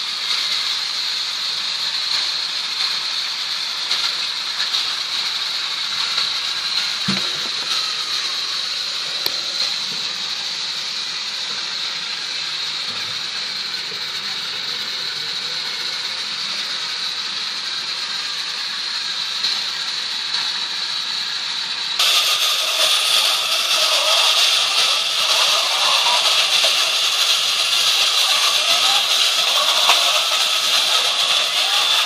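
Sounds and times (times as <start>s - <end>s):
loud busy sound: 4.5s - 18.8s, 22.0s - 32.0s.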